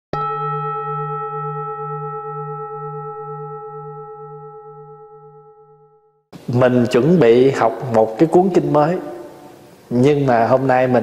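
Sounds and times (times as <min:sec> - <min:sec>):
singing bowl ringing: 0:00.1 - 0:06.3.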